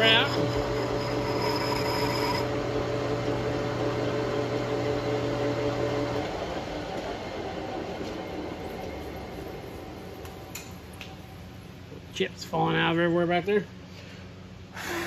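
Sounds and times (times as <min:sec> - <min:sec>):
metal lathe hum: 0:00.0 - 0:10.1
lathe whine: 0:00.0 - 0:10.4.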